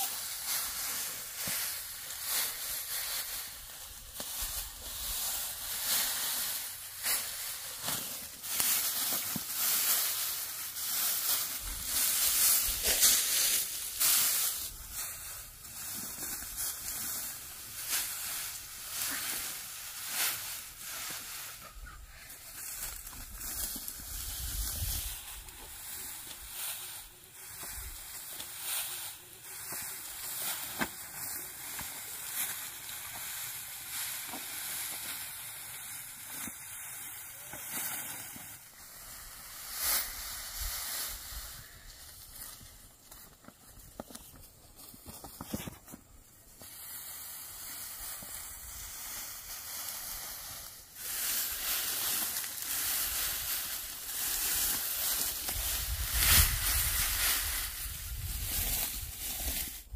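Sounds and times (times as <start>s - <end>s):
dry rice stalks rustling: 0.0s - 59.9s.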